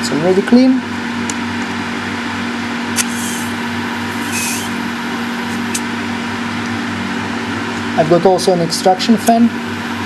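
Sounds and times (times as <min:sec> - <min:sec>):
extraction fan hum: 0:00.0 - 0:10.0.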